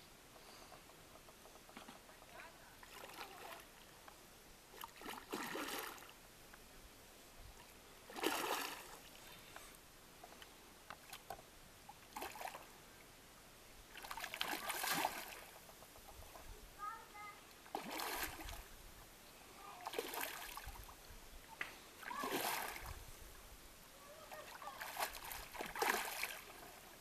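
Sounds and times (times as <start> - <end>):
fish splashing and thrashing: 4.8 - 6.1, 8.1 - 9.0, 13.9 - 15.6, 17.7 - 18.6, 19.8 - 20.9, 22.0 - 23.0, 24.4 - 26.7.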